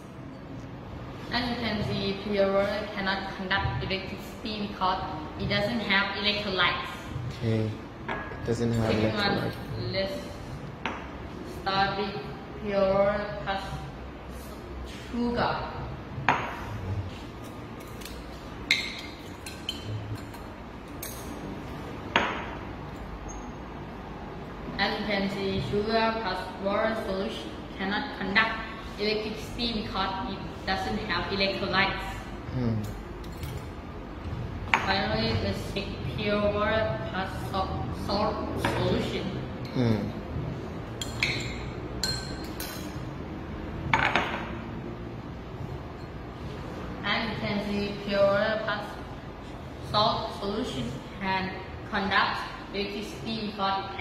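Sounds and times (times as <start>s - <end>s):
glassware clinking: 17.8s - 21.4s, 41.0s - 43.0s
glass beakers clinking: 41.0s - 42.9s.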